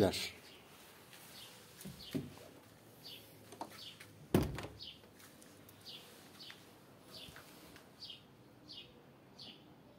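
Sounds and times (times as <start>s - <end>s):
songbird chirping: 0.0s - 9.9s
door shutting: 4.3s - 4.9s.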